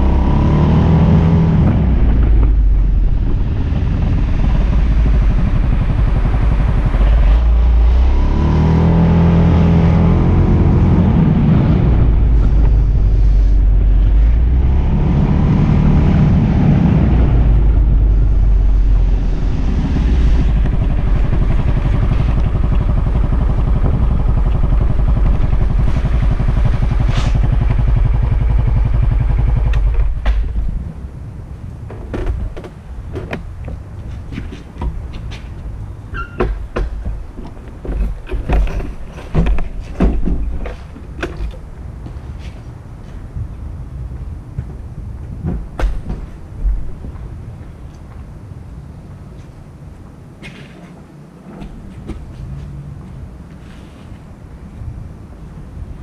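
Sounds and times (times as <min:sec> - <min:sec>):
steady rushing noise: 0:00.0 - 0:56.0
scooter engine running: 0:20.4 - 0:30.2.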